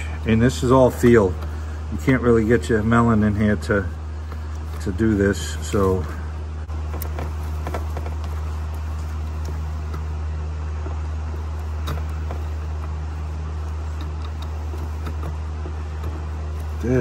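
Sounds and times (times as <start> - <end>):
machine hum: 0.0 - 17.0
plastic clicks and rustles: 6.8 - 10.1.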